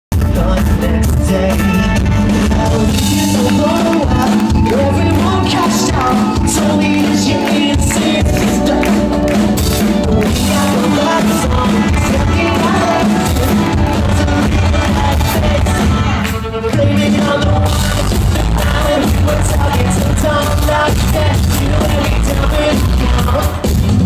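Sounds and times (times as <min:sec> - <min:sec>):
drum kit: 0:00.1 - 0:24.0
lead singer: 0:00.1 - 0:24.0
electric guitars: 0:00.2 - 0:24.0.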